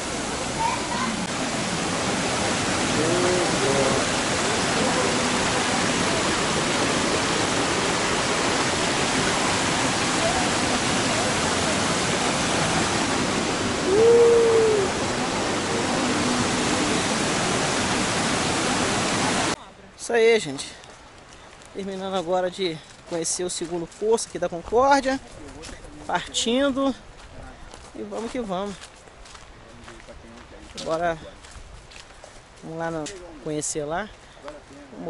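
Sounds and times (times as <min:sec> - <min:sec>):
waterfall rushing into pool: 0:00.0 - 0:19.6
person calling out: 0:13.8 - 0:15.0.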